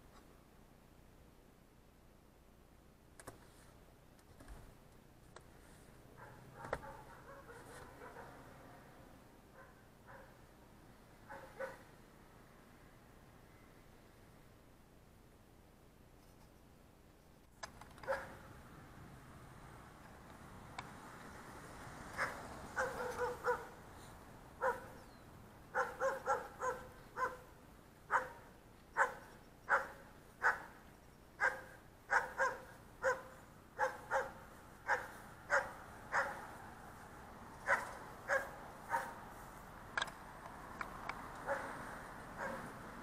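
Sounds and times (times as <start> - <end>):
dog barking: 6.2 - 8.5, 9.5 - 10.4, 11.2 - 11.9, 18.0 - 18.4, 22.2 - 23.8, 24.6 - 25.0, 25.7 - 27.5, 28.1 - 30.8, 31.4 - 36.5, 37.6 - 39.2, 41.4 - 41.8, 42.4 - 42.7.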